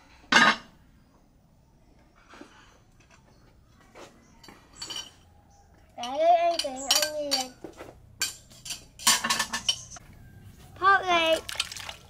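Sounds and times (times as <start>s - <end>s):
metal spoon clinking on plate: 8.2s - 10.0s.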